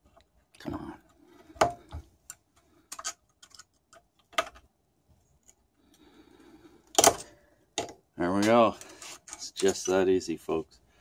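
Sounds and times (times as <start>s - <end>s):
faint metal scraping: 8.2s - 10.2s.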